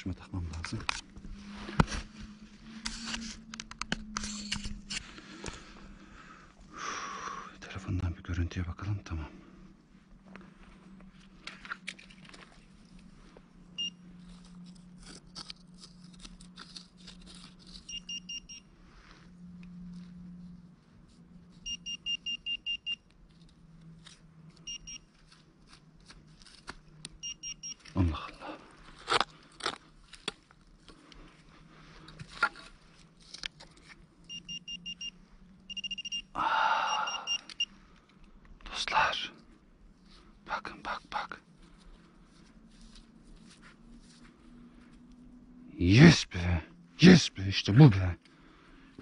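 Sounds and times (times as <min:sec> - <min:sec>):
metal detector beeping: 0:13.8 - 0:14.0, 0:17.8 - 0:18.7, 0:21.6 - 0:23.1, 0:24.6 - 0:25.1, 0:27.2 - 0:28.0, 0:34.2 - 0:37.7.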